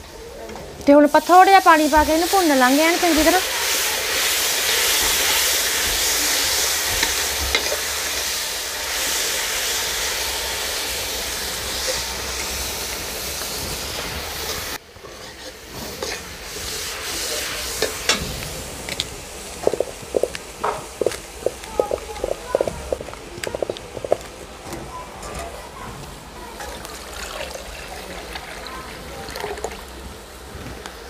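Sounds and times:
spices sizzling in a hot pan: 0.9s - 24.4s
ladle scraping a pot: 14.5s - 16.3s.

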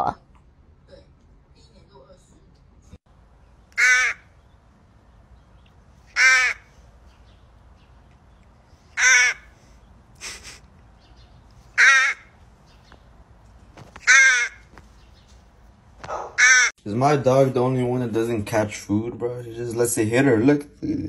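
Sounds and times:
crow cawing: 3.8s - 4.4s, 6.1s - 6.8s, 8.9s - 10.6s, 11.7s - 12.4s, 13.8s - 14.8s, 16.0s - 16.7s.

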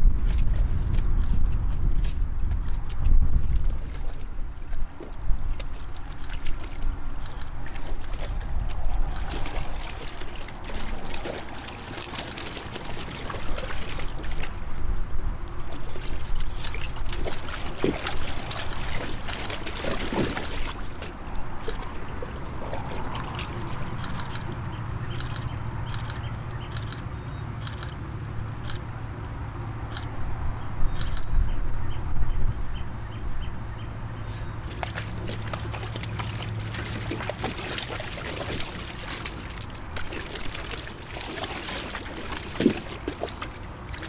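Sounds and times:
dogs splashing in water: 3.4s - 26.8s, 34.5s - 44.0s.

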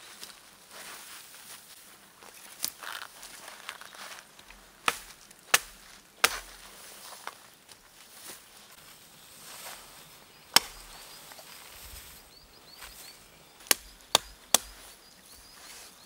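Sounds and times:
hatchet chopping branches: 4.5s - 6.7s, 9.4s - 15.1s
branches swishing and rustling: 4.9s - 16.0s.

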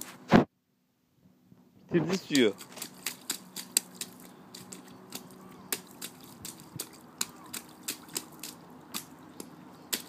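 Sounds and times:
rubber boots stomping in puddle: 2.3s - 10.0s.

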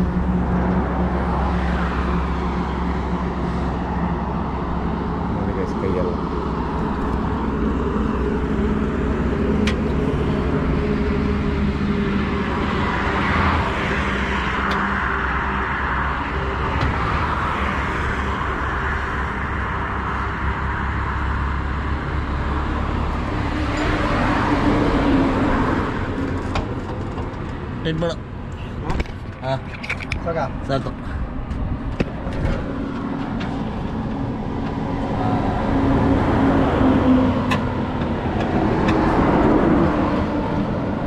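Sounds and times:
highway traffic passing: 0.0s - 41.0s.

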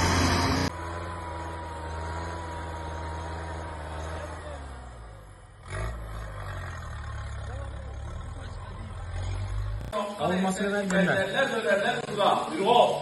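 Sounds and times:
truck engine running at low revs: 0.0s - 10.0s.

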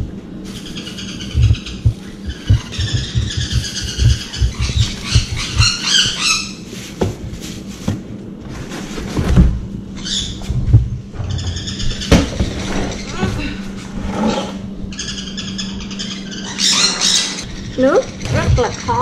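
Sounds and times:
high-pitched bird calls: 0.5s - 6.6s, 14.9s - 19.0s.

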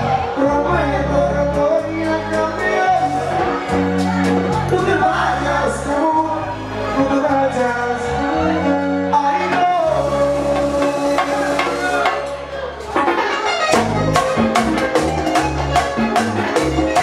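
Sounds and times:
man singing: 0.0s - 3.8s, 4.5s - 12.1s
live band playing: 0.0s - 17.0s.

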